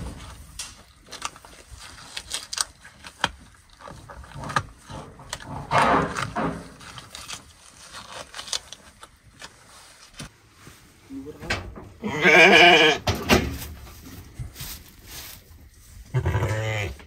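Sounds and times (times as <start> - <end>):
rustling in straw: 13.4 - 17.0.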